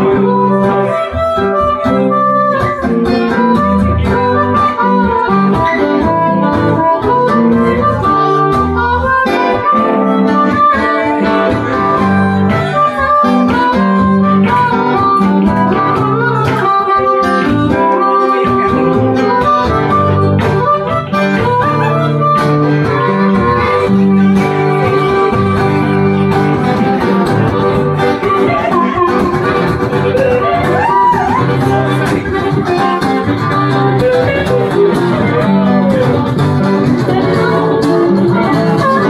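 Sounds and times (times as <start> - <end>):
blues harmonica: 0.0 - 39.0
guitar accompaniment: 0.0 - 39.0.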